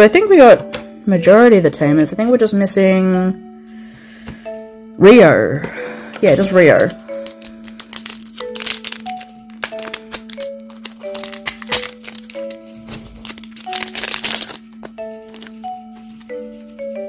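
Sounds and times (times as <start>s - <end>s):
soft background music: 0.0s - 17.0s
foil wrapper crinkling and tearing: 6.2s - 16.8s.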